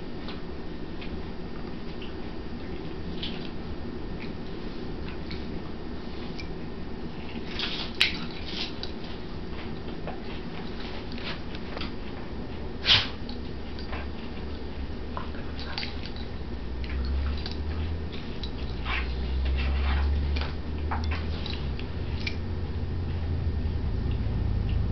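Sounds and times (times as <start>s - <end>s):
dogs play-wrestling: 7.2s - 22.4s
low rumble: 16.2s - 24.9s.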